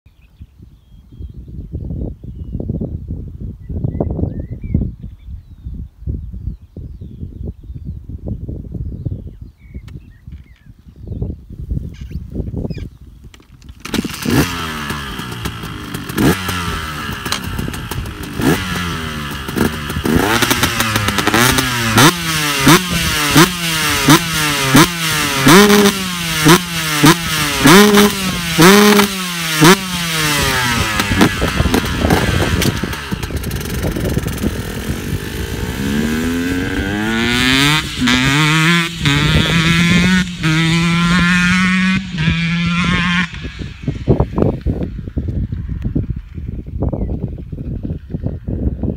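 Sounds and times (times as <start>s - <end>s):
dirt bike engine revving: 13.8s - 45.3s.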